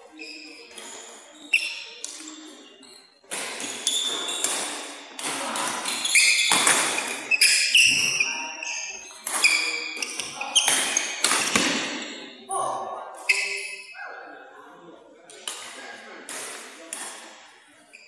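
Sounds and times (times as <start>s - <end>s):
shoes squeaking on court floor: 0.1s - 5.1s, 5.7s - 12.3s, 13.2s - 13.9s
rackets striking shuttlecock: 16.3s - 17.4s.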